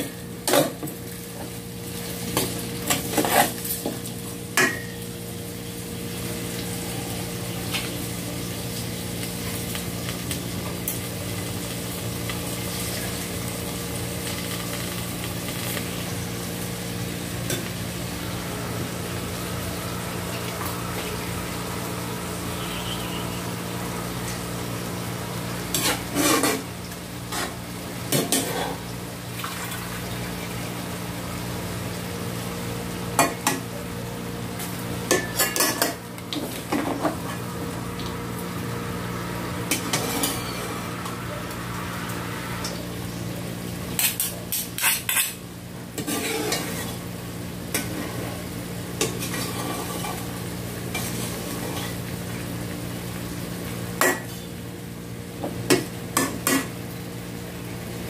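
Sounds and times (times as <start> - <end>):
utensils clinking on metal pot: 44.0 - 45.4.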